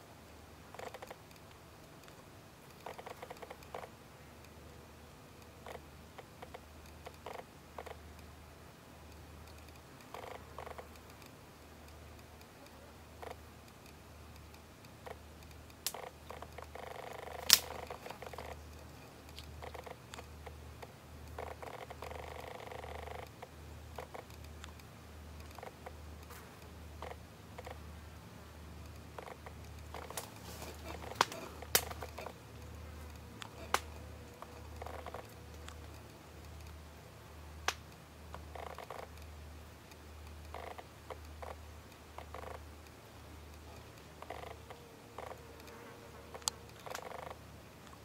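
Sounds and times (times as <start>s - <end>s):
flying insects buzzing: 2.0s - 4.0s, 14.9s - 27.8s, 28.9s - 36.8s, 43.6s - 47.6s
sharp clicks: 9.1s - 27.8s, 28.8s - 36.9s, 37.6s - 45.8s, 46.4s - 48.0s.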